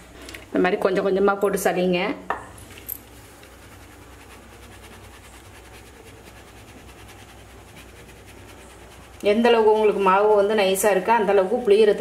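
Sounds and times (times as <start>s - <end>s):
low steady hum: 0.0s - 12.0s
flour rustling through sieve: 2.6s - 12.0s.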